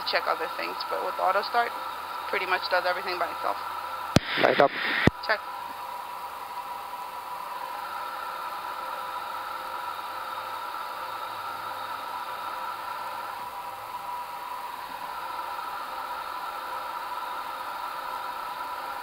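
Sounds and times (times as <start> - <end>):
jet engine spooling up: 0.0 - 19.0
steady hiss with high whine: 0.0 - 19.0.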